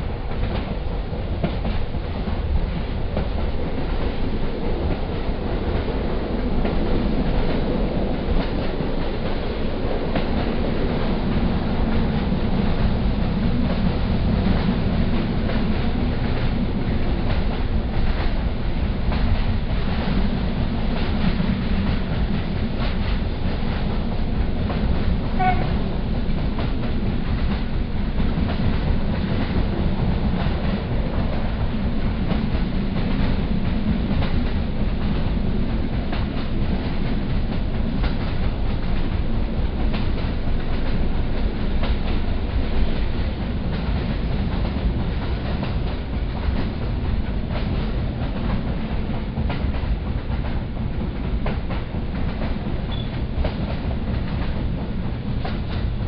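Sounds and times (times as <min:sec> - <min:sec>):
clickety-clack of rail joints: 0:00.0 - 0:56.0
train wheels rumbling on track: 0:00.0 - 0:56.0.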